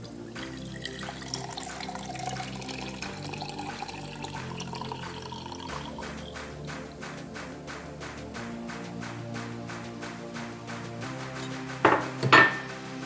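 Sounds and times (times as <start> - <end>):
juice trickling into glass: 0.0 - 6.4
background music: 0.0 - 13.0.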